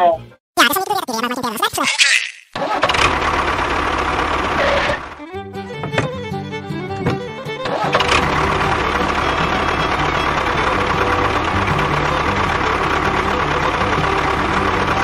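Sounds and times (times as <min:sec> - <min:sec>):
tractor engine idling with knocking: 0:02.6 - 0:05.2, 0:07.0 - 0:15.0.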